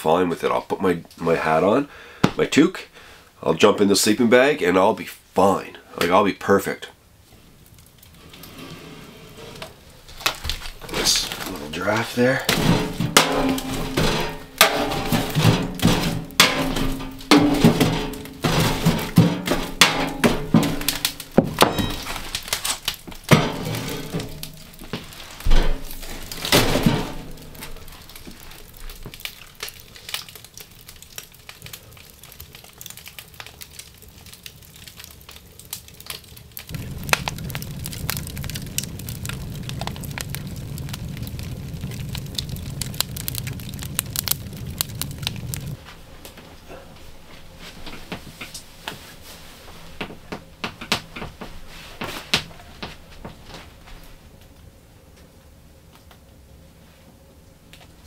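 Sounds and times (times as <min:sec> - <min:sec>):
wood fire crackling and popping: 0:00.0 - 0:56.5, 0:57.6 - 0:58.0
log knocking into stove: 0:12.5 - 0:22.1
low steady rumble: 0:36.7 - 0:46.7.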